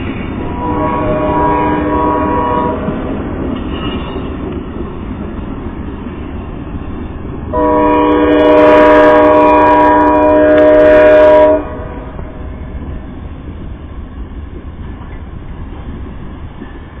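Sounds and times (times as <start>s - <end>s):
train rumbling on rails: 0.0s - 17.0s
train air horn blast: 0.5s - 3.1s, 7.5s - 12.4s.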